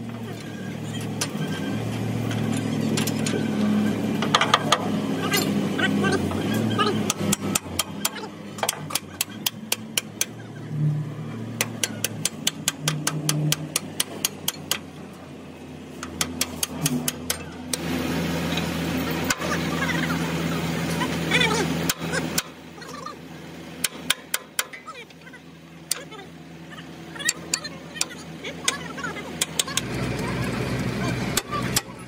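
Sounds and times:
hammer striking steel: 7.0s - 10.4s, 11.6s - 14.9s, 16.0s - 17.8s, 23.8s - 24.8s.

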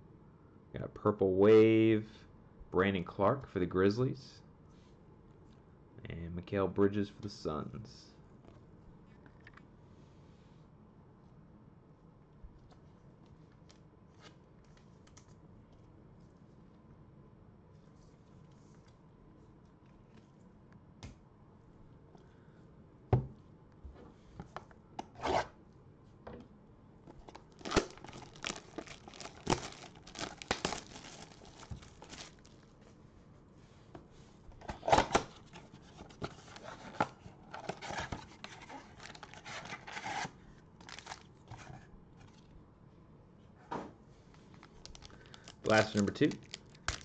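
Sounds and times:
foil packs crinkling and rustling: 27.2s - 32.7s, 37.6s - 41.7s, 44.3s - 47.0s.

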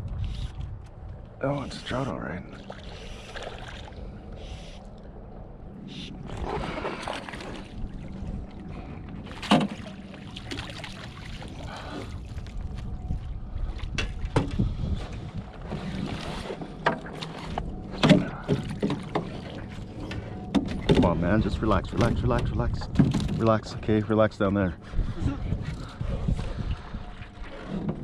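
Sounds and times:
fish splashing in water: 9.3s - 12.5s.

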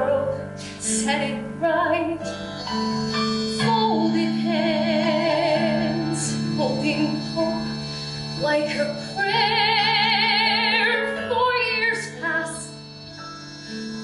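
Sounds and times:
woman singing a ballad: 0.0s - 2.4s, 3.5s - 7.6s, 8.4s - 12.8s
sustained instrumental accompaniment: 0.0s - 14.0s.

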